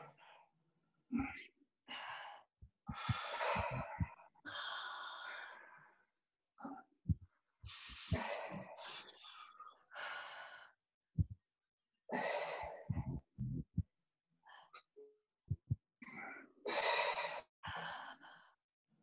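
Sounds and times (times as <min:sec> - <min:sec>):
man breathing heavily: 0:02.9 - 0:05.6
soft low thuds: 0:12.9 - 0:13.8, 0:15.5 - 0:15.8.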